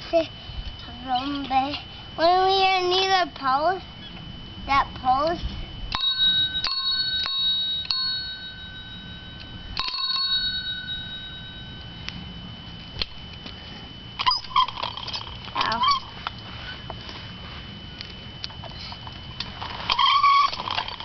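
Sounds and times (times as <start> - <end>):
bicycle bell dings: 5.9 - 12.1
short squeaky sounds: 14.2 - 15.2, 19.9 - 20.8.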